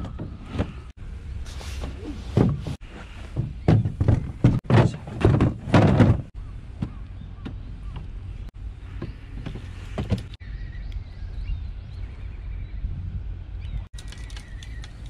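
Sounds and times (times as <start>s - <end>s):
objects knocking on plastic hull: 3.4s - 7.6s.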